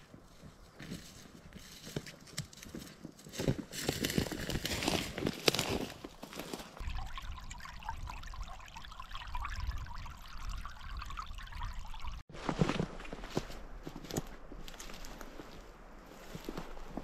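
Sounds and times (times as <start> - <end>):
footsteps: 0.0 - 6.8, 12.3 - 17.0
water trickling and bubbling: 6.8 - 12.2.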